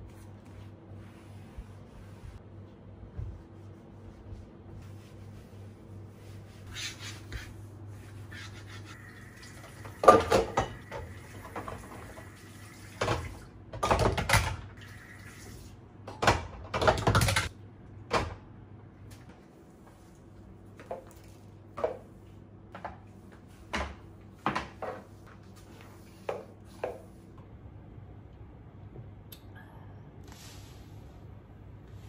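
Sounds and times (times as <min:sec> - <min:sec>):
steady low hum: 0:00.0 - 0:10.0
dishes and utensils clattering: 0:10.0 - 0:11.9.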